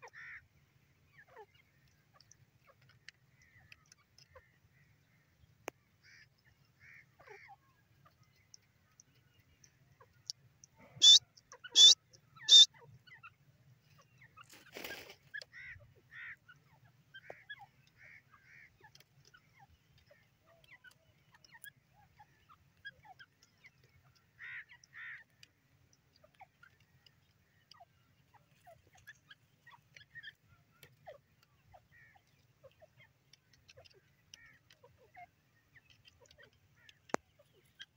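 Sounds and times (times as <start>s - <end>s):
francolin sharp calls: 10.0s - 13.4s
soft short chirps: 11.0s - 12.7s.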